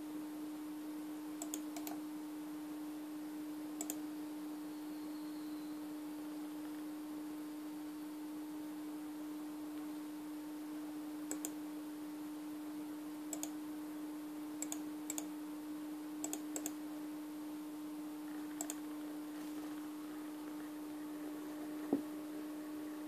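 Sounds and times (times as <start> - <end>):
steady hum: 0.0 - 23.0.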